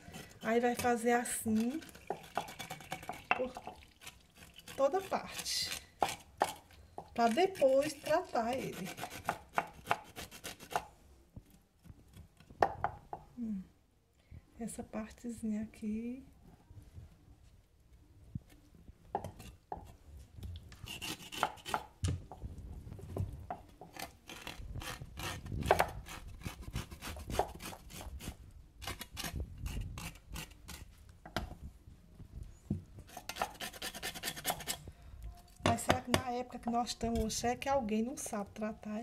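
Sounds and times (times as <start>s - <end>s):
knife scraping chicken skin: 1.6s - 3.3s, 20.7s - 21.8s, 33.1s - 34.8s.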